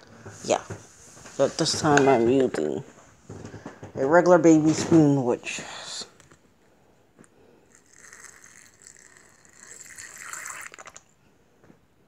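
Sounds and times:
water pouring into container: 0:07.8 - 0:11.1.

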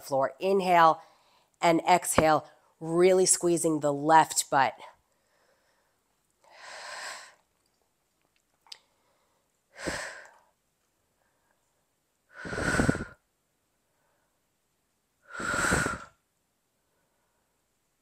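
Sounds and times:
woman breathing: 0:01.0 - 0:01.6, 0:05.1 - 0:07.6, 0:08.8 - 0:14.5, 0:15.2 - 0:16.2.

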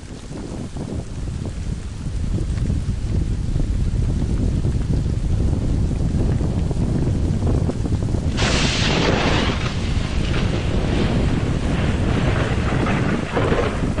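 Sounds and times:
wind on microphone: 0:00.0 - 0:14.0
rush of water: 0:08.3 - 0:14.0.

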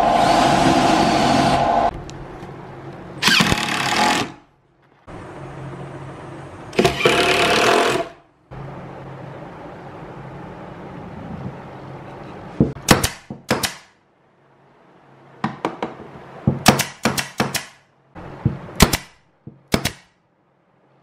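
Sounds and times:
nail gun firing into plywood: 0:16.6 - 0:17.8, 0:18.8 - 0:20.1.

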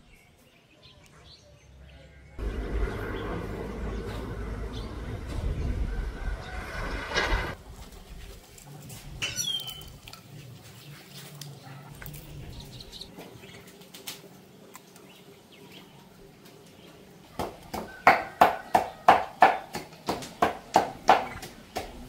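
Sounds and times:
bird chirping: 0:09.2 - 0:10.0.

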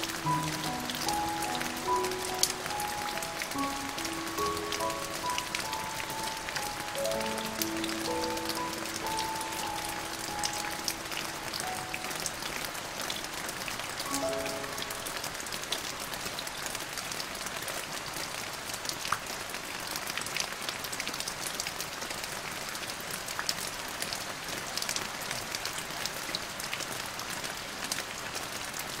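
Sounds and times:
raindrops ticking on hard surface: 0:00.0 - 0:22.4
steady rain hiss: 0:00.0 - 0:29.0.

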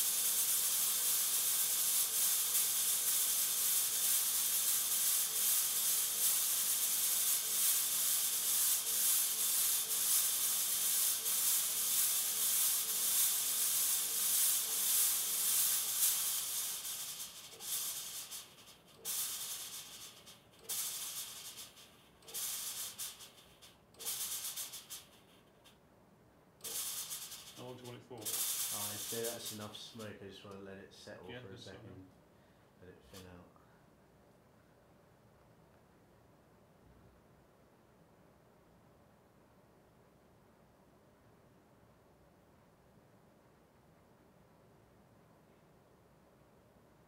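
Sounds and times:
smoke spray hissing: 0:00.0 - 0:25.3, 0:26.6 - 0:30.1.

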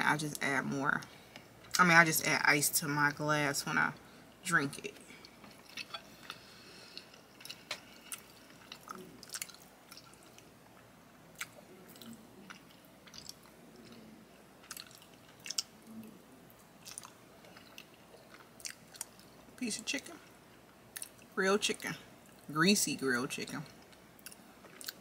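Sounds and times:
close-up chewing: 0:05.2 - 0:19.5, 0:23.7 - 0:25.0.

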